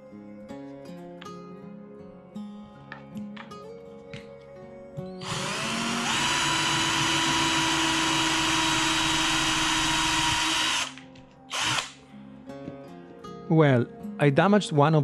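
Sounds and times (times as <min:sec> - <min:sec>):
cordless drill drilling into metal: 0:05.2 - 0:12.0.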